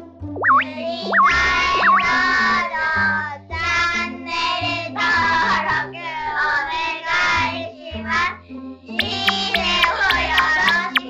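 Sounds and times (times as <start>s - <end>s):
bass line: 0.3s - 2.6s, 9.0s - 11.0s
high childlike singing voice: 9.0s - 11.0s.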